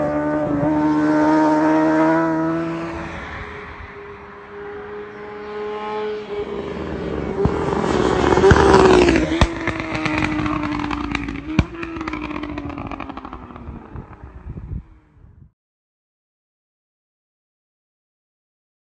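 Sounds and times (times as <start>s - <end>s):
motorcycle passing at high revs: 0.0s - 15.2s
exhaust pops and crackles: 7.4s - 14.4s.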